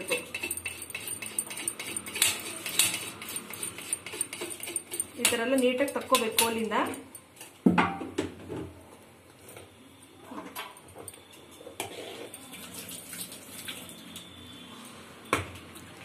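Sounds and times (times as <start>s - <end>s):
spoon scraping metal pot: 0.0s - 7.1s, 11.7s - 12.4s.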